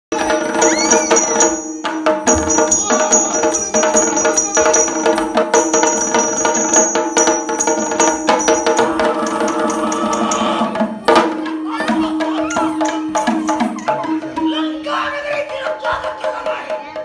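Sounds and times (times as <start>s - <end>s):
rapid drum strokes: 0.1s - 17.0s
small hand cymbals ringing: 0.2s - 10.6s.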